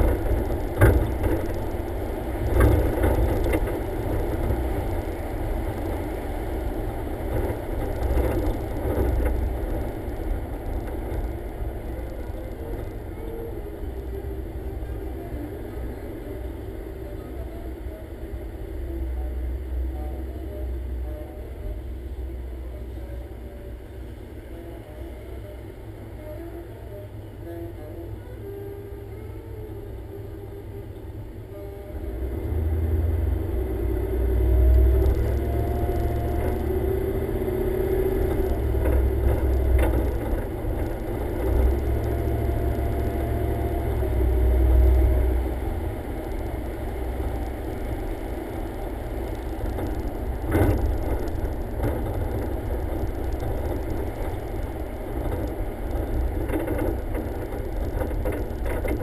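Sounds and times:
car engine and road rumble: 0.0s - 59.0s
wind buffeting microphone: 33.6s - 59.0s.

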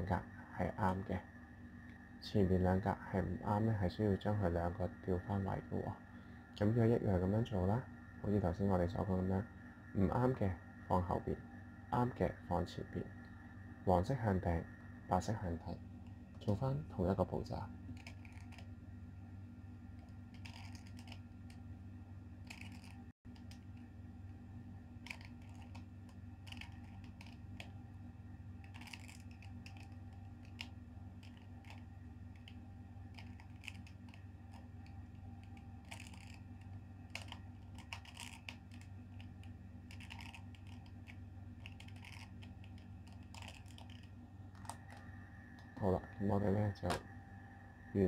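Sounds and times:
low hum: 0.0s - 48.0s
plastic puzzle cube clicking: 20.4s - 21.2s, 25.0s - 25.8s, 26.5s - 27.7s, 28.7s - 31.8s, 33.2s - 34.6s, 35.8s - 36.4s, 37.1s - 39.3s, 39.9s - 44.8s.

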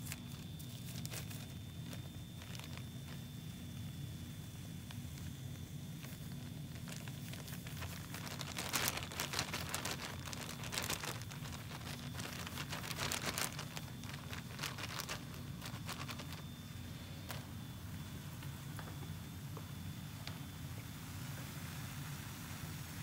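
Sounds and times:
plastic bag crinkling: 0.0s - 3.9s, 4.8s - 17.6s.

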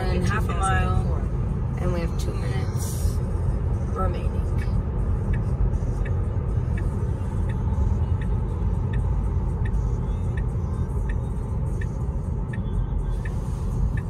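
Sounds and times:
road and tyre rumble: 0.0s - 14.0s
turn signal ticking: 0.0s - 14.0s.

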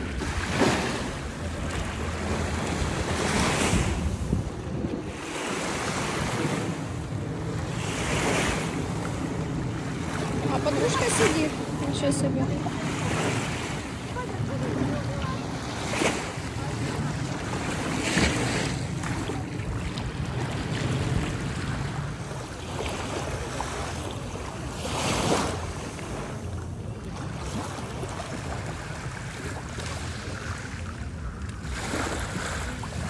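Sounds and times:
wind buffeting microphone: 0.0s - 24.7s
small waves washing on shore: 0.0s - 33.0s.

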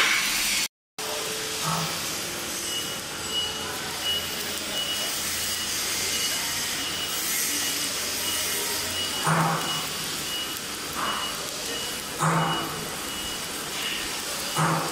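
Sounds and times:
workshop machinery hum: 0.0s - 14.9s.

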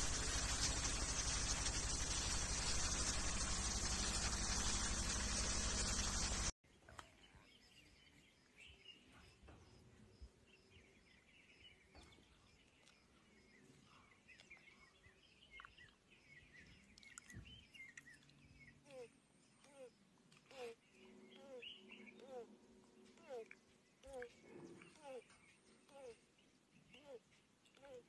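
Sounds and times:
faint bird chirps: 0.1s - 22.5s.

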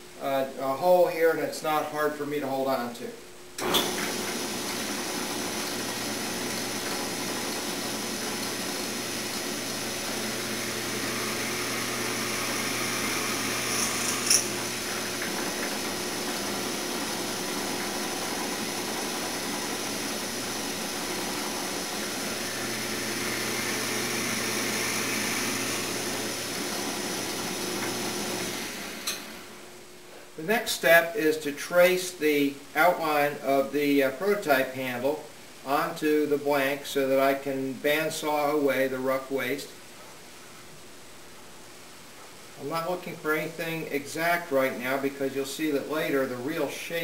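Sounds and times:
drill press boring wood: 3.6s - 29.6s.

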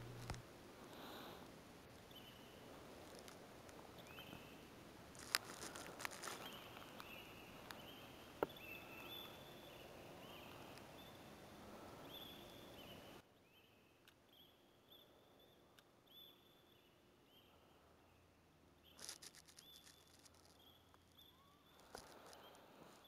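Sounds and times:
faint high chirps: 6.3s - 22.8s.

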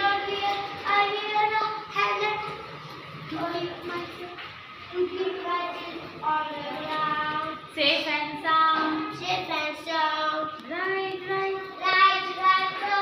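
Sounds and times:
child singing: 8.6s - 13.0s.

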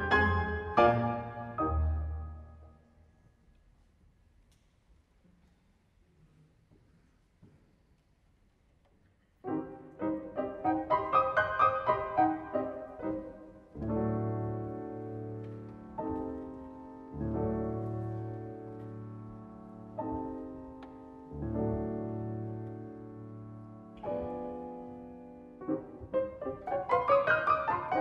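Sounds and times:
grand piano chords: 0.0s - 3.2s, 9.4s - 28.0s.

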